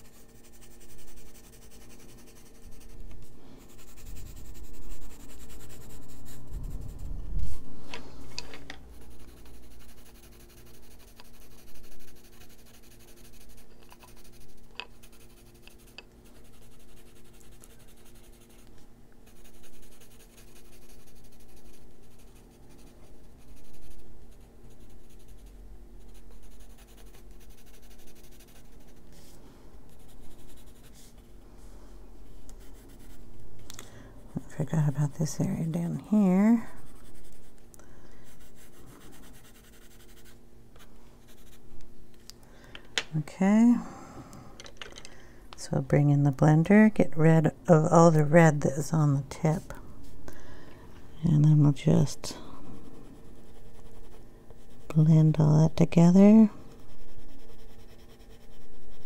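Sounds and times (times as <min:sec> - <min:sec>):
pencil scratching on paper: 0:00.0 - 0:07.6, 0:08.9 - 0:29.3, 0:29.9 - 0:31.2, 0:32.5 - 0:33.2, 0:34.3 - 0:37.6, 0:38.2 - 0:40.4, 0:41.2 - 0:41.6, 0:52.8 - 0:55.3, 0:56.7 - 0:59.0
faint steady hum: 0:00.0 - 0:59.0.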